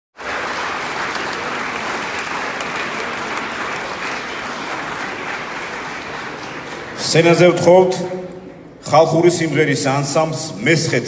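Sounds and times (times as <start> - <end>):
large audience applauding: 0.2 - 7.6.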